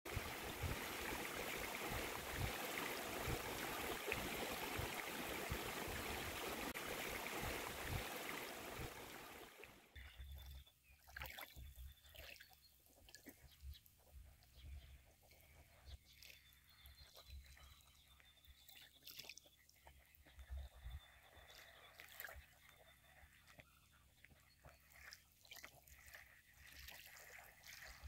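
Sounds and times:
rushing water: 0:00.1 - 0:09.9, 0:24.9 - 0:28.0.

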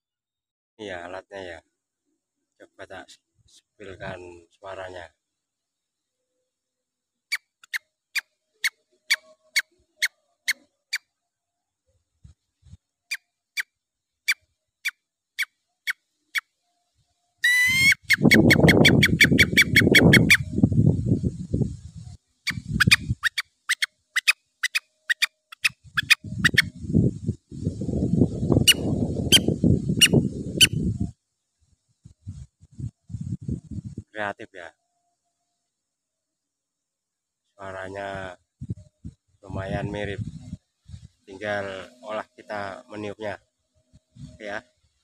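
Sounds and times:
bird caller chirping: 0:17.4 - 0:20.5, 0:22.5 - 0:26.7, 0:28.6 - 0:30.8.

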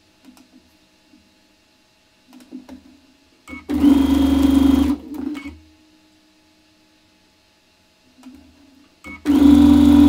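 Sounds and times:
electric sewing machine stitching: 0:03.7 - 0:05.5, 0:09.1 - 0:10.0.

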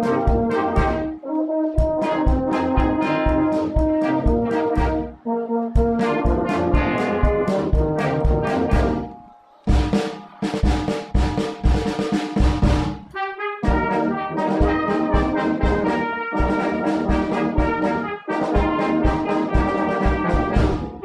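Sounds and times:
steady drum beat: 0:00.0 - 0:05.1, 0:05.8 - 0:21.0
held brass notes: 0:00.0 - 0:21.0.

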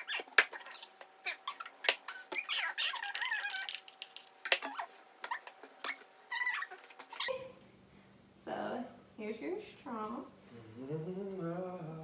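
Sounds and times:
wavering squeak: 0:04.7 - 0:07.3.

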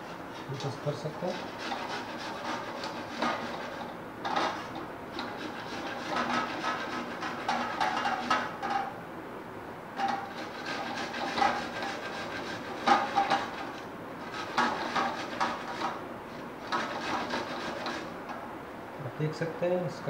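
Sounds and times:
corn cob rasping on grater: 0:00.0 - 0:08.4, 0:10.0 - 0:16.0, 0:16.6 - 0:18.2.

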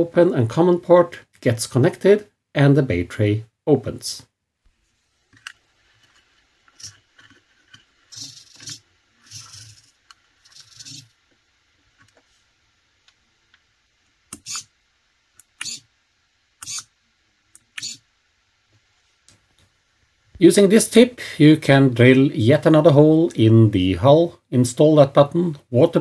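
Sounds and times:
servo whirring: 0:08.1 - 0:09.8, 0:14.3 - 0:14.8, 0:15.6 - 0:15.8, 0:16.6 - 0:16.9, 0:17.7 - 0:18.0.

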